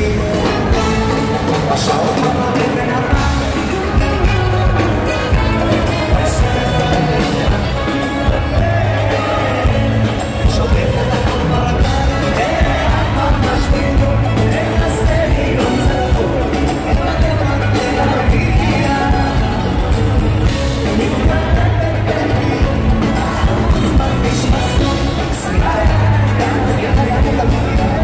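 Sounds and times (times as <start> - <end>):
live band with drums: 0.0 - 28.0
man singing into a microphone: 0.0 - 28.0.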